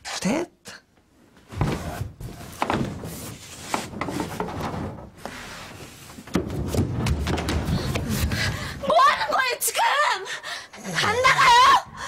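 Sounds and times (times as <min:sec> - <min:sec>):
knocking and rubbing against wood: 0:01.5 - 0:08.5.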